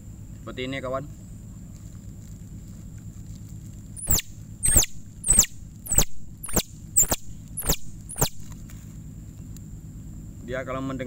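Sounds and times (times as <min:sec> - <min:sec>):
plastic bag game call squeaks: 0:04.0 - 0:08.6.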